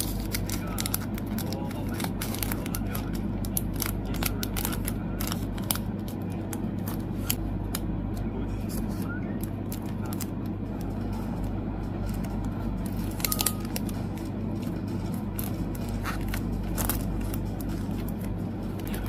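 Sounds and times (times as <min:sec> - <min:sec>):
plastic sleeves crinkling: 0:00.0 - 0:07.8, 0:08.6 - 0:19.0
steady low hum: 0:00.0 - 0:19.0.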